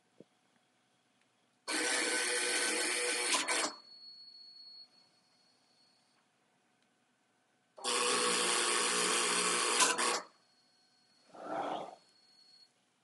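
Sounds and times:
welding wire drive whirring: 0:07.8 - 0:10.3.

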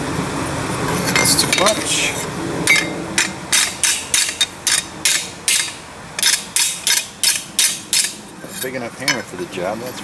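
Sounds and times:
hammer striking steel plate: 0:02.7 - 0:08.2.

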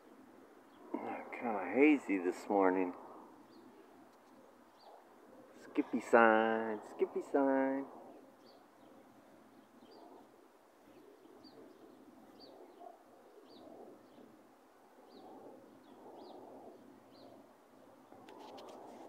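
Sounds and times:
dove cooing: 0:02.8 - 0:06.2, 0:07.9 - 0:19.0.

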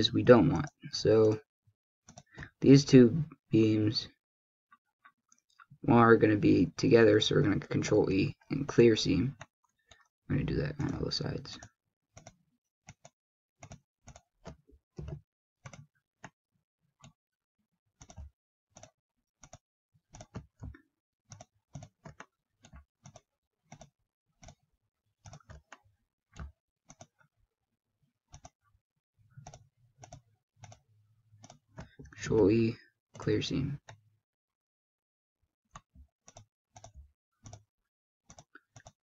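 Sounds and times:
computer mouse clicks: 0:02.1 - 0:02.6, 0:11.6 - 0:16.4, 0:18.0 - 0:24.6, 0:25.2 - 0:27.2, 0:28.3 - 0:28.6, 0:29.4 - 0:30.8, 0:31.4 - 0:32.2, 0:35.8 - 0:37.7, 0:38.3 - 0:39.0.

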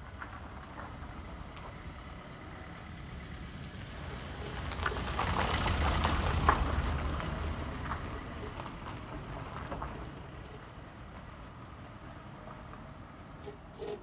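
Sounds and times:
car driving past: 0:01.4 - 0:09.9.

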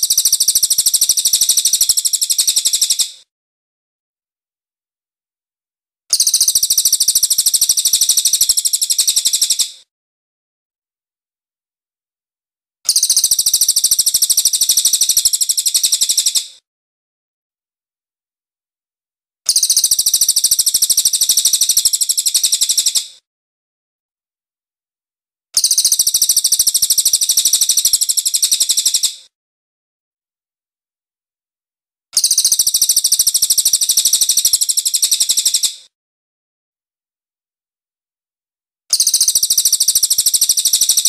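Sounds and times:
jay high-pitched rattling call: 0:00.0 - 0:03.1, 0:25.6 - 0:29.1, 0:32.2 - 0:35.7, 0:38.9 - 0:41.0.

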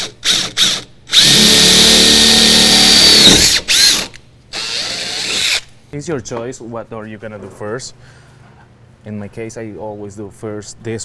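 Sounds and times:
cordless drill boring sheet metal: 0:00.0 - 0:05.7.

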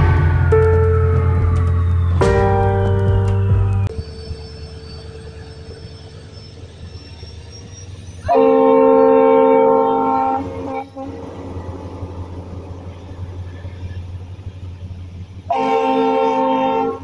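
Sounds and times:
diesel train rumbling past: 0:00.0 - 0:17.0
locomotive air horn: 0:08.2 - 0:11.3, 0:15.5 - 0:17.0.

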